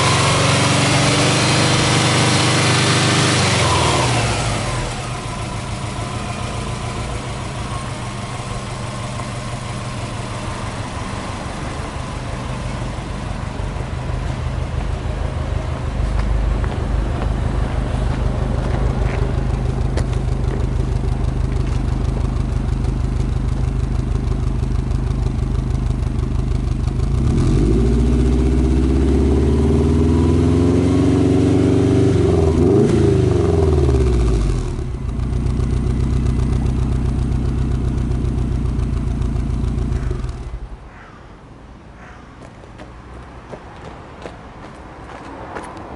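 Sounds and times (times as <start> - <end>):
car engine revving: 0.0 - 40.8
car engine idling: 0.0 - 41.2.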